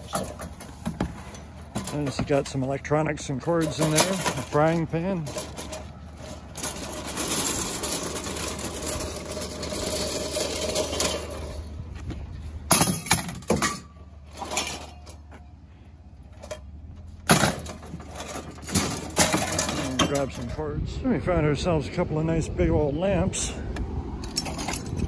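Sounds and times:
metallic clanks: 0.0 - 15.5, 16.3 - 20.6
scrap rustling and scraping: 0.0 - 15.5.

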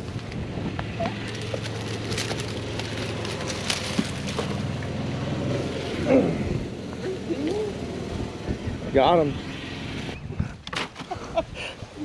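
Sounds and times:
leaves and branches rustling: 0.0 - 5.6.

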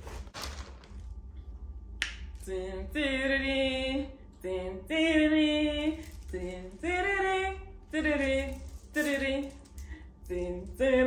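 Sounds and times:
woman singing unaccompanied: 2.4 - 11.0.

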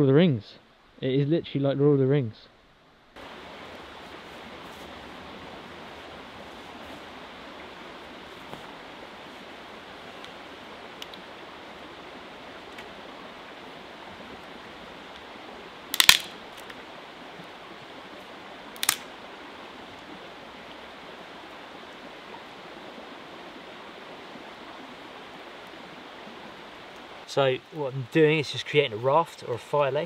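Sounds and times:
small river flowing: 2.6 - 30.0
dry sticks snapping: 15.9 - 16.8, 18.8 - 19.1.

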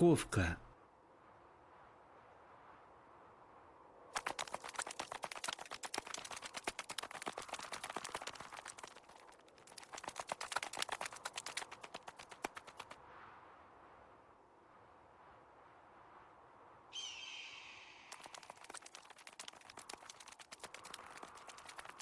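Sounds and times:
rapid tiny footsteps ticking: 4.2 - 13.0, 18.2 - 22.0.

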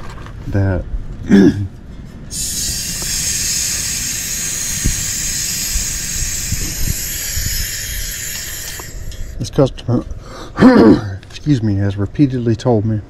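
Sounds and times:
gas hissing from valve: 2.3 - 9.4.

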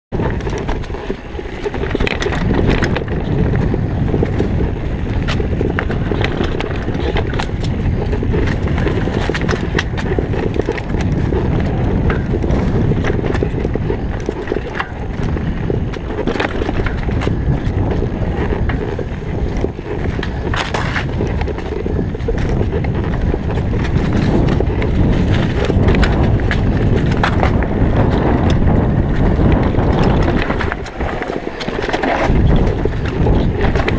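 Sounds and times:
bike rattles and knocks: 0.1 - 33.9
tyres rumbling on dirt trail: 0.1 - 33.9
wind buffeting microphone: 0.1 - 33.9.

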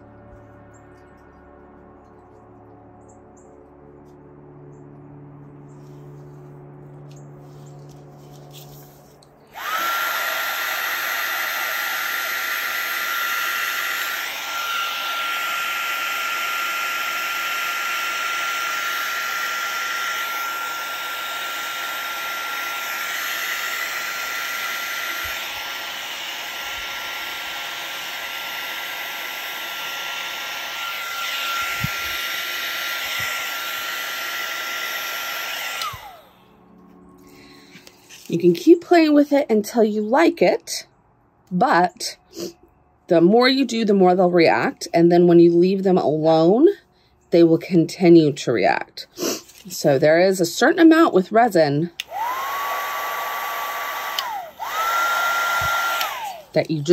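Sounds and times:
heat gun blowing with high whine: 9.4 - 36.7, 51.9 - 56.9.

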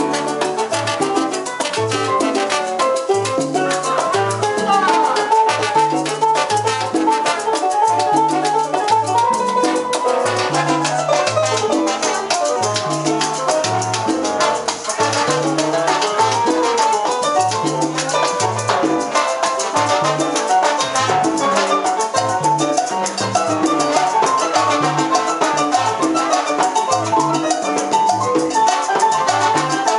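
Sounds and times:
trombones playing melody: 0.0 - 3.1, 4.4 - 13.2, 13.8 - 17.4, 18.5 - 22.4, 23.1 - 27.1, 28.7 - 29.9
congas and timbales: 0.0 - 29.9
bass line: 0.7 - 19.1.

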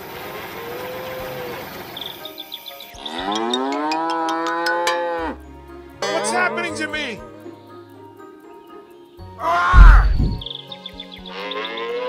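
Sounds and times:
cow mooing: 3.0 - 5.4, 6.0 - 7.2, 11.3 - 12.0.

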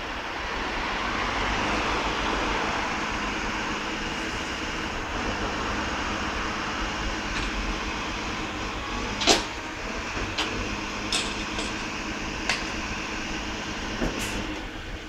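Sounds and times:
garbage truck running: 0.0 - 15.0
metal clangs and knocks: 11.1 - 11.8.

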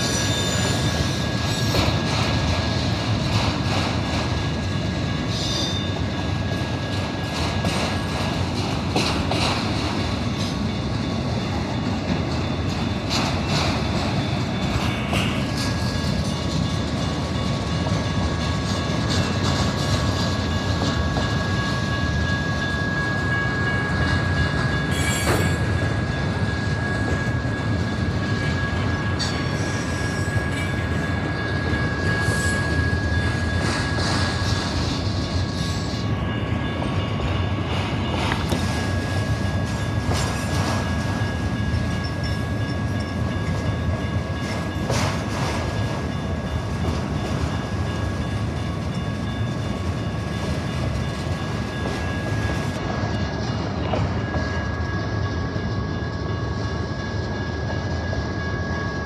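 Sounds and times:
high wheel squeal: 0.0 - 2.0, 5.2 - 6.0, 20.9 - 36.2
train wheels rumbling on rail: 0.0 - 59.0.

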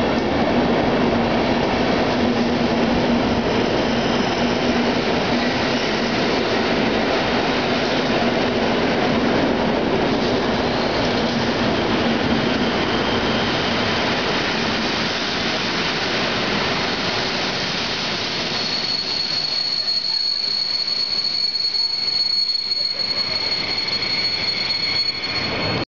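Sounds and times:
train wheels rumbling on rail: 0.0 - 25.8
high wheel squeal: 3.2 - 6.6, 10.1 - 14.2, 17.9 - 25.8.

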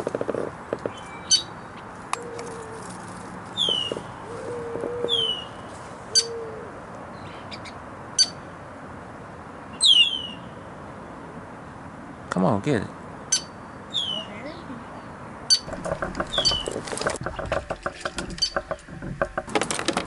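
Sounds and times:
bird chips and whistles: 3.6 - 4.0.

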